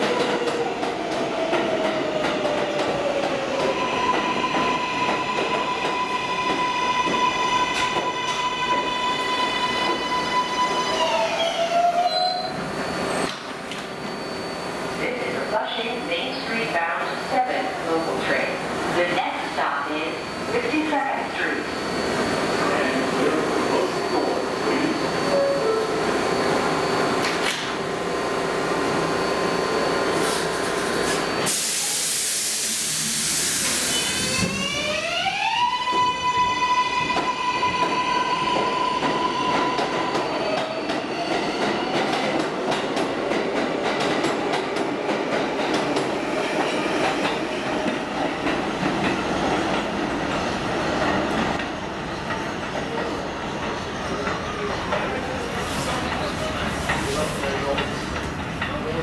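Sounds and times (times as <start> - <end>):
train propulsion whine: 0.0 - 55.5
air hiss: 30.2 - 34.3.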